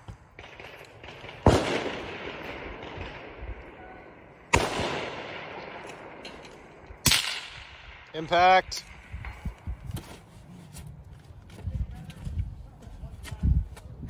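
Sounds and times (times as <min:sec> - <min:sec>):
rifle shots with rolling echo: 0:00.0 - 0:09.3.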